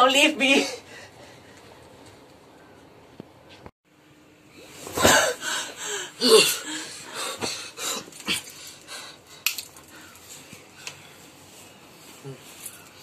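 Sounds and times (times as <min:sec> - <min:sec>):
person moaning: 0:05.2 - 0:08.5
person breathing heavily and gasping: 0:05.2 - 0:10.2.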